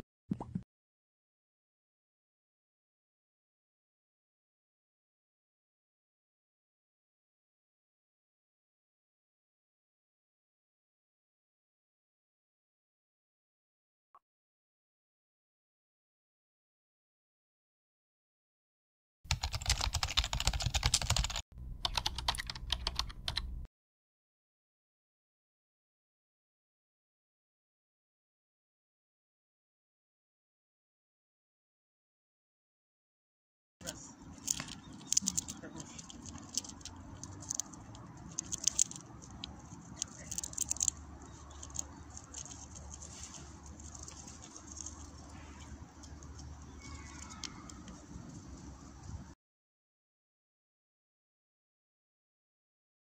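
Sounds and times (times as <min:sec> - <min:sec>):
fast typing on keyboard: 0:19.3 - 0:23.6, 0:34.2 - 0:49.3
squirrel gnawing food: 0:33.8 - 0:49.3.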